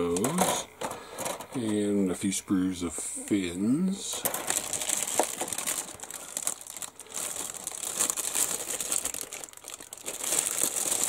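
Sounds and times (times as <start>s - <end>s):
plastic bag crinkling and rustling: 4.1s - 11.0s.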